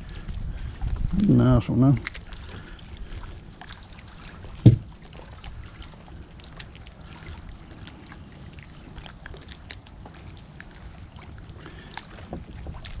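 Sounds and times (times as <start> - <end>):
wind and water: 0.0 - 13.0
short thump: 4.6 - 4.9.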